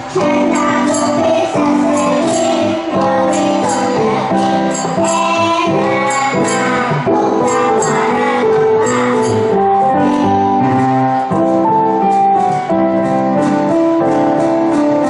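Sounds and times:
children singing into microphones: 0.0s - 12.0s
jingling tambourine beat: 0.0s - 15.0s
recorded backing music: 0.0s - 15.0s.

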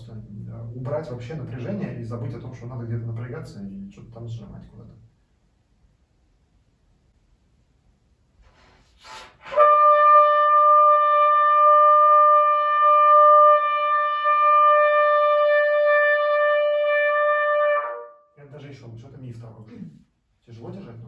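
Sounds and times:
quick breath in: 8.4s - 9.4s
trumpet holding long note: 9.4s - 18.3s.

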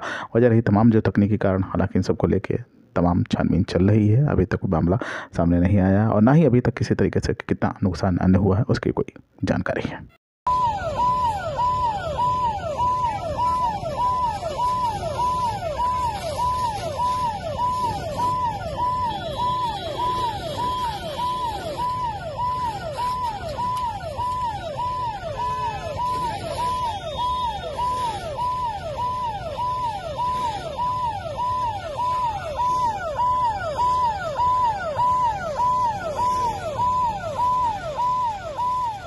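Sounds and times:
emergency vehicle siren: 10.5s - 39.0s.

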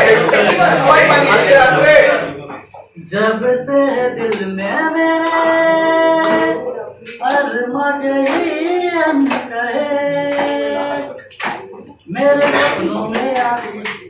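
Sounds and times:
young man singing: 3.0s - 11.3s, 11.9s - 14.0s.

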